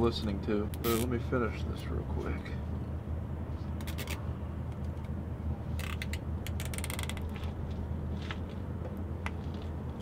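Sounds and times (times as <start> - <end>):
vehicle engine rumbling: 0.0 - 10.0
zip ties ratcheting clicks: 5.8 - 7.2.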